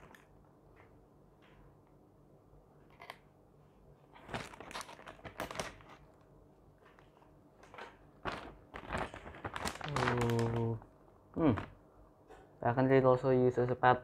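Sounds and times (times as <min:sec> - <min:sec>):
plastic bag crinkling: 0:00.0 - 0:00.4, 0:04.1 - 0:11.8.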